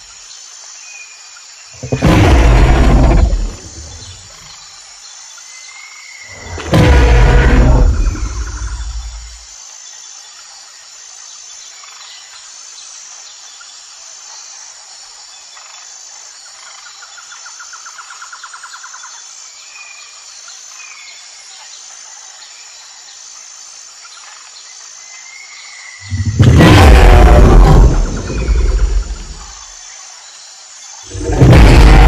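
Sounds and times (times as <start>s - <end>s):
steady background hiss: 8.0s - 26.4s, 27.8s - 32.0s.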